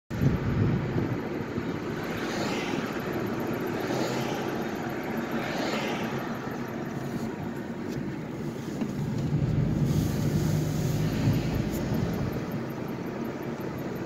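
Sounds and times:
car engine and tyre rumble: 0.1 - 14.0
brief hissing swells: 9.7 - 11.8.

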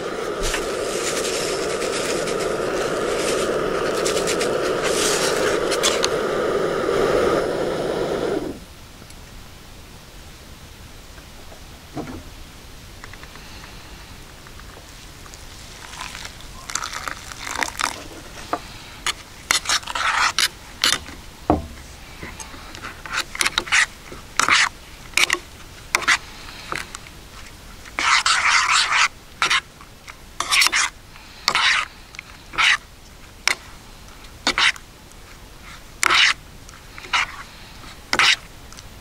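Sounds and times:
spoon scraping a dish: 16.9 - 21.2, 22.2 - 26.9, 27.8 - 29.7, 30.4 - 31.9, 32.5 - 32.8, 33.4 - 33.7, 34.4 - 38.5.

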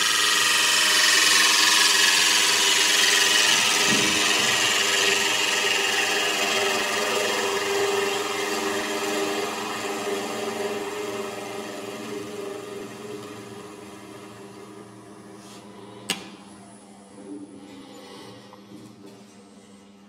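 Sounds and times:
lathe tool cutting wood hiss: 0.0 - 16.0
wood lathe running: 0.0 - 17.3.

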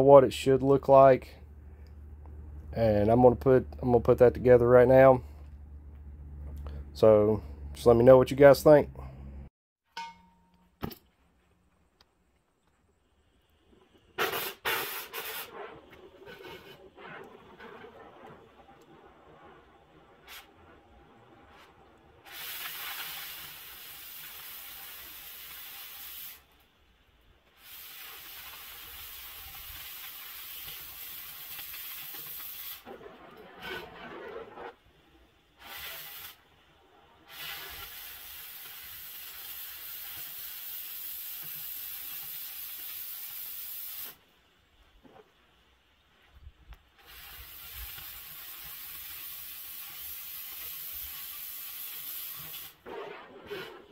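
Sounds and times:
quiet torch flame: 11.2 - 53.9
cutting torch hissing: 13.8 - 26.6, 27.4 - 34.4, 35.4 - 44.2, 47.0 - 53.9.

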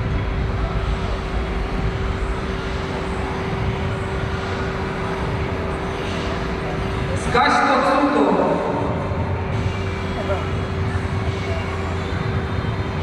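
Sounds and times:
loud subwoofer bass drone: 0.0 - 13.0.

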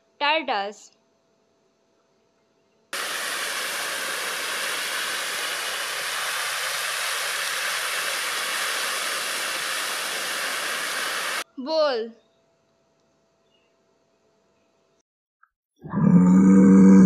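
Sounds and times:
steady high hiss: 3.0 - 11.4.

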